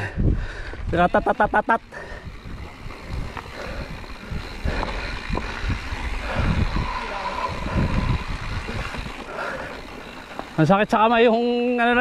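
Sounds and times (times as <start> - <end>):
mountain bike rattling: 0.0 - 12.0
wind on microphone: 1.9 - 9.4
tyres crunching on stones: 2.6 - 6.2.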